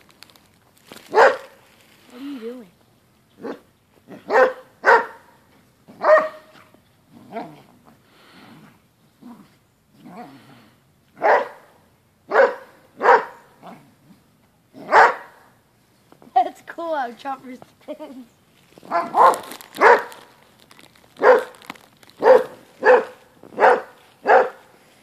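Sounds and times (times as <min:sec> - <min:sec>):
dog barking: 0:01.1 - 0:01.5, 0:03.4 - 0:05.3, 0:06.0 - 0:06.6, 0:11.2 - 0:13.5, 0:14.8 - 0:15.4, 0:18.9 - 0:20.2, 0:21.2 - 0:21.6, 0:22.2 - 0:24.7
dog growling: 0:07.1 - 0:07.8, 0:08.4 - 0:10.8.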